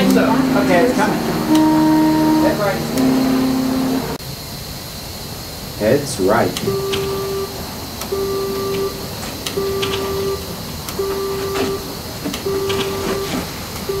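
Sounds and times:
electronic beep: 0.0s - 4.1s, 6.6s - 7.5s, 8.1s - 9.0s, 9.6s - 10.4s, 11.0s - 14.0s.

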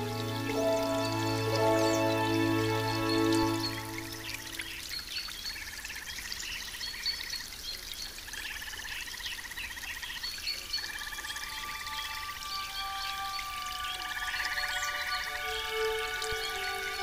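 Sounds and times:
background music: 0.0s - 4.8s, 10.9s - 17.0s.

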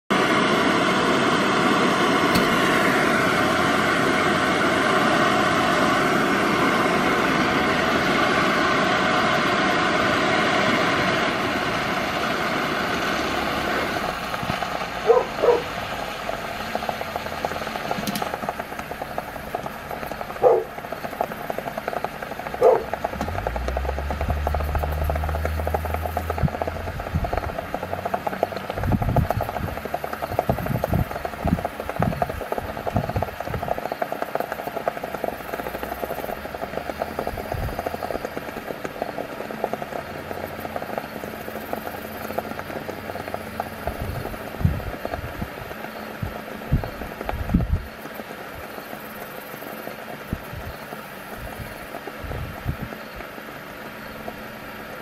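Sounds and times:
burning candy popping: 13.2s - 54.3s.

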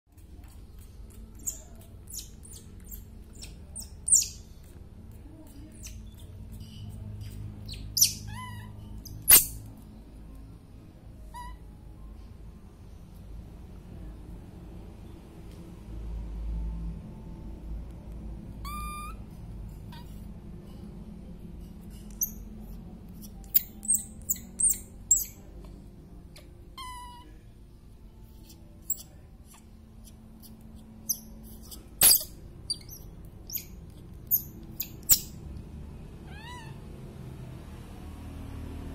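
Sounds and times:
baby monkey squeaking: 0.5s - 4.8s, 5.4s - 9.7s, 11.2s - 11.7s, 18.6s - 20.3s, 21.9s - 27.4s, 28.3s - 35.4s, 36.3s - 36.8s
baby monkey cooing: 0.8s - 4.5s, 7.2s - 9.6s, 18.6s - 19.2s, 23.2s - 25.4s, 28.4s - 35.4s.

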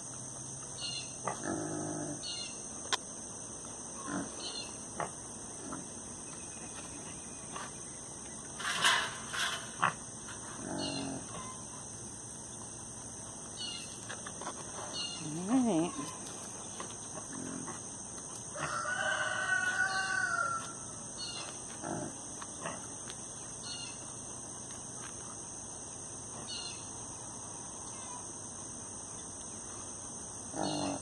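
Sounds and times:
drawn-out animal call: 15.1s - 16.2s.

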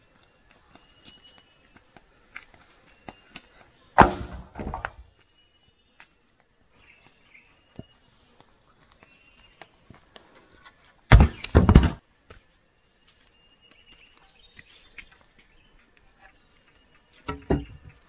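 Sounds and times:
loud knocks and thuds: 4.0s - 5.0s, 11.1s - 12.0s, 17.3s - 17.8s.

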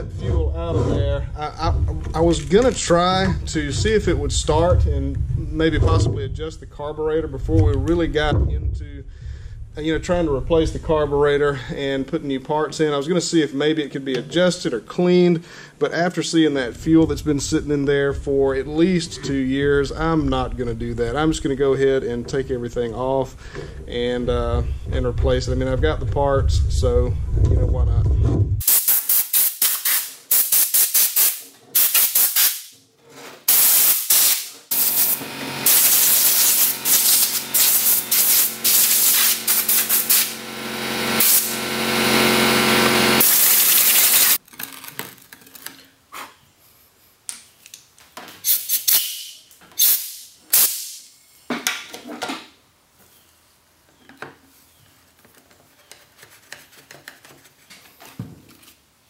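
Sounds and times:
compressed air hissing from blow gun: 28.6s - 32.7s, 33.5s - 40.4s, 43.2s - 44.4s, 48.4s - 51.0s
parts being handled: 44.4s - 46.4s, 53.9s - 59.0s.

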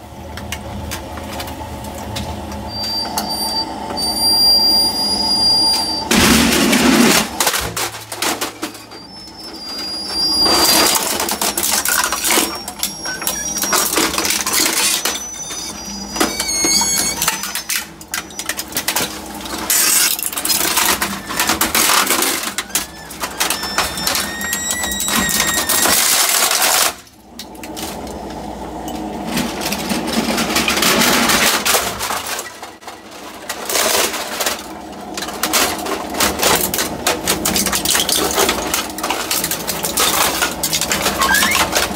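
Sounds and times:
machine hum: 0.0s - 41.9s
high metallic squeaks: 2.7s - 6.1s, 8.4s - 18.6s, 20.8s - 26.2s, 41.0s - 41.9s
shredder crunching plastic and metal: 5.2s - 41.9s.

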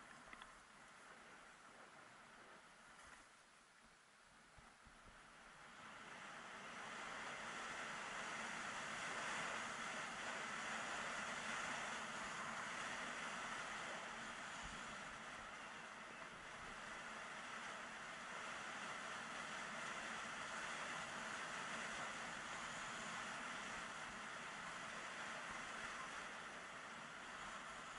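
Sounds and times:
skis hissing over snow: 7.0s - 15.1s.

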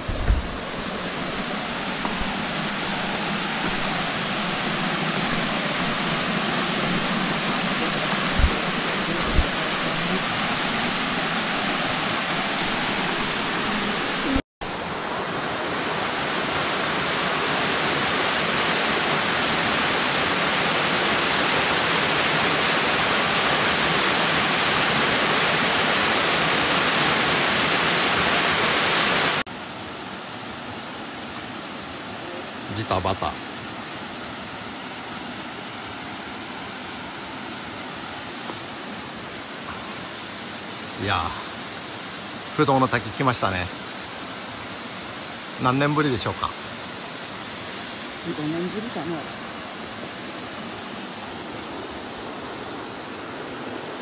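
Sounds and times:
low thumps: 0.0s - 2.4s, 8.2s - 9.7s
waterfall rushing: 0.0s - 54.0s.

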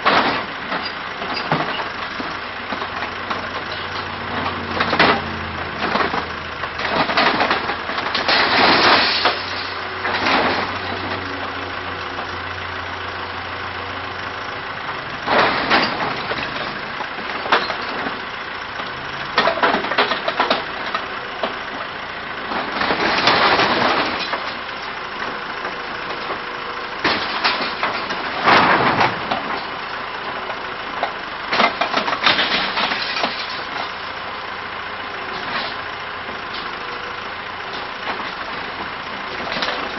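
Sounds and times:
backhoe engine running: 0.0s - 39.9s
structure crunching and splintering: 4.6s - 10.7s, 22.6s - 24.6s.

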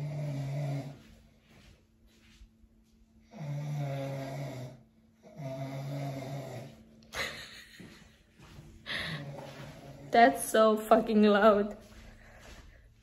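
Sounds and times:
loud snoring: 0.0s - 1.0s, 3.3s - 6.8s.

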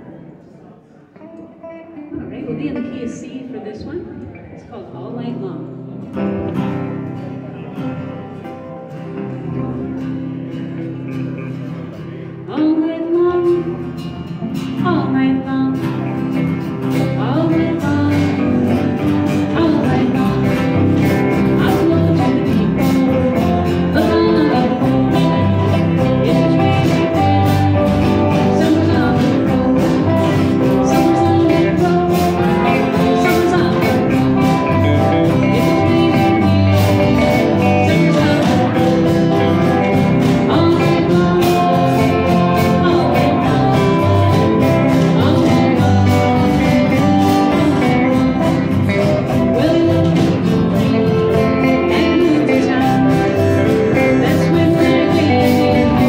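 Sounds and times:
electric guitars: 1.1s - 56.0s
bass guitar: 5.3s - 56.0s
strummed acoustic guitar: 5.8s - 56.0s
woman singing: 12.5s - 56.0s.

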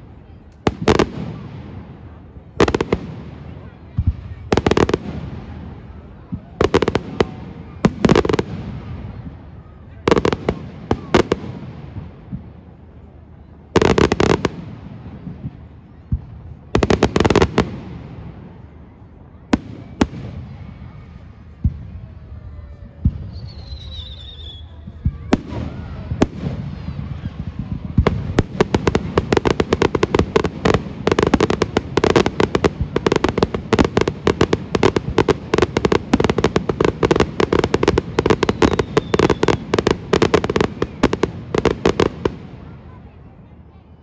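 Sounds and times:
firework bangs: 0.0s - 12.8s, 13.7s - 43.1s
firework whistle: 19.5s - 29.6s, 37.0s - 41.6s
rapid firework cracks and pops: 24.9s - 42.7s.

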